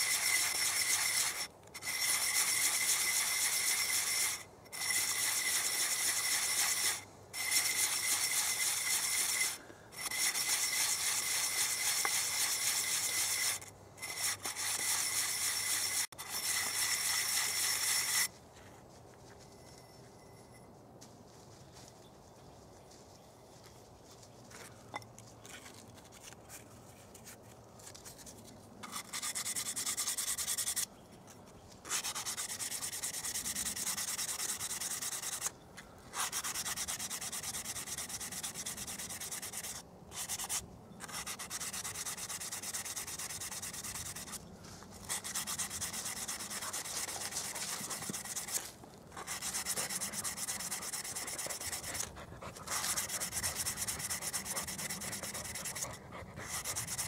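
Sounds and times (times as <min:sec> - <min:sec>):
sanding glass with abrasive cloth: 0:00.0 - 0:18.3, 0:28.9 - 0:30.8, 0:31.9 - 0:35.5, 0:36.2 - 0:44.4, 0:45.0 - 0:48.6, 0:49.2 - 0:57.0.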